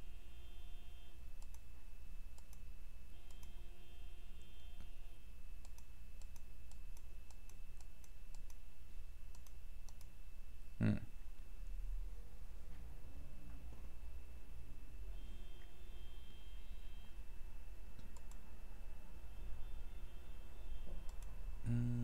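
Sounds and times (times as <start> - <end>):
steady low hum: 0.0 - 22.0
computer mouse clicking: 1.4 - 1.7, 2.3 - 3.6, 5.6 - 8.6, 9.3 - 10.1, 18.0 - 18.4, 21.0 - 21.4.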